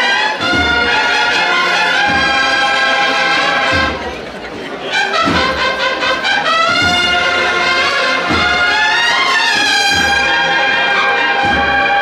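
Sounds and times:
cornets playing a march melody: 0.0s - 12.0s.

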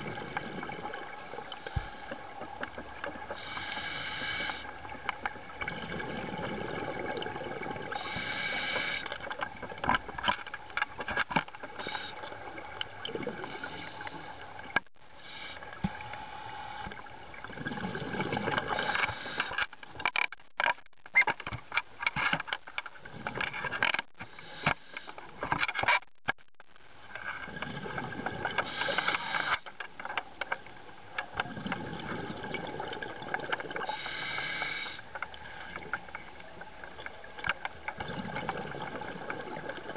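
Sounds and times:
underwater bubbles rushing: 0.0s - 3.7s, 4.7s - 8.2s, 16.9s - 19.3s, 27.3s - 29.0s, 31.3s - 34.0s, 35.3s - 39.9s
diver breathing on regulator: 3.3s - 4.7s, 7.9s - 9.2s, 18.2s - 19.6s, 28.5s - 29.7s, 33.8s - 35.8s.

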